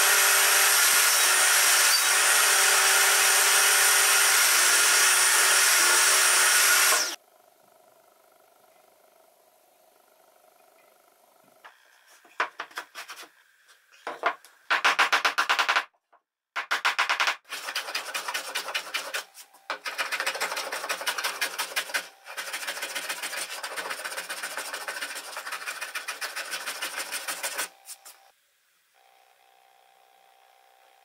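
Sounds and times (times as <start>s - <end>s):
plane shaving wood: 0.0s - 7.2s, 17.5s - 28.2s.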